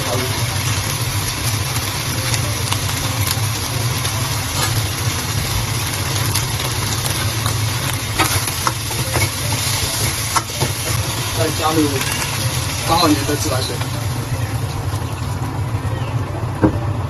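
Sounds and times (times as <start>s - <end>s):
food frying in a wok: 0.0s - 17.0s
low mechanical hum: 0.0s - 17.0s.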